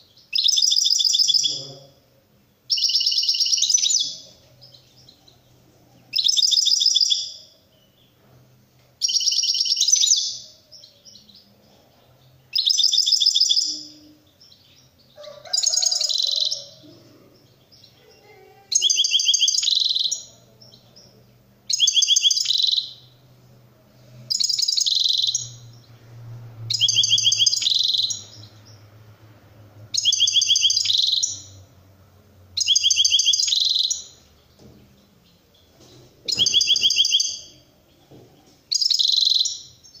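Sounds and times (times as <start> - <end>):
goldfinch rattling song: 24.3 - 25.7, 26.7 - 28.8, 29.9 - 31.6, 32.6 - 37.5, 38.7 - 40.0.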